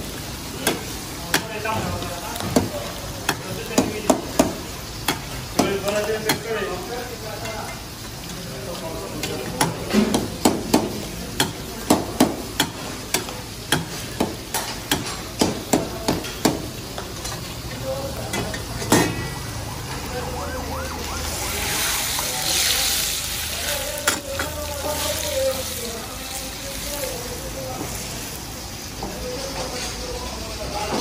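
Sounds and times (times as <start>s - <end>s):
meat sizzling: 0.0s - 30.5s.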